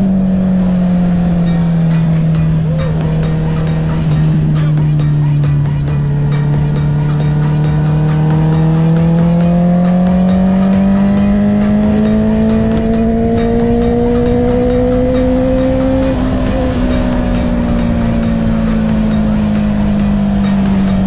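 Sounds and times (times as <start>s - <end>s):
motorcycle engine accelerating: 0.0s - 21.0s.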